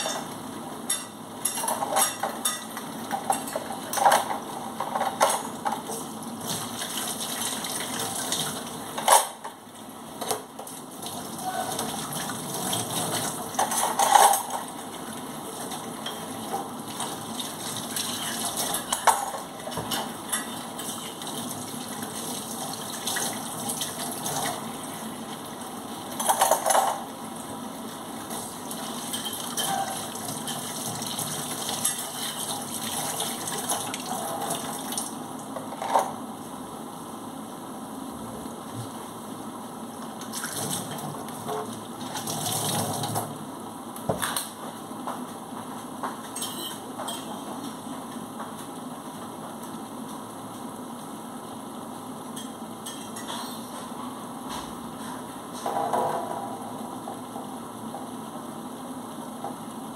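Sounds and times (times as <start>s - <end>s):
dishes and cutlery clinking: 0.9s - 6.0s, 13.6s - 14.7s, 18.1s - 21.2s, 26.2s - 27.0s, 29.0s - 30.7s, 46.2s - 47.7s, 52.4s - 53.9s.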